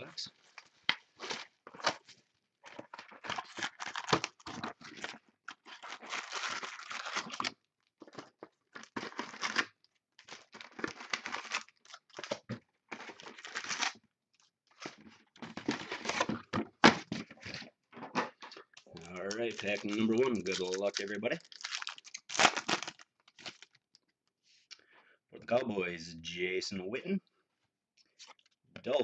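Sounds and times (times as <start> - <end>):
plastic shrink wrap tearing: 2.8 - 12.4, 19.0 - 23.8.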